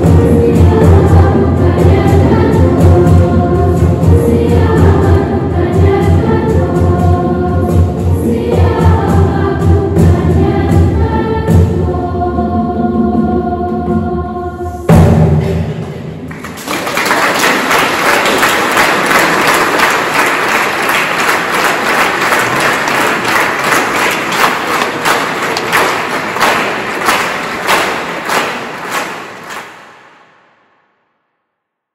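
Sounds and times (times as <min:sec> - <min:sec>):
choir song final thump: 0:00.0 - 0:16.6, 0:17.4 - 0:30.8
audience applauding: 0:16.3 - 0:30.2.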